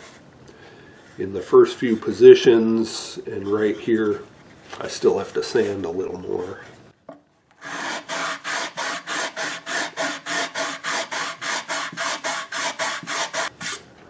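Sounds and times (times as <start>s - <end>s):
sandpaper rubbing on wood: 7.6s - 13.8s.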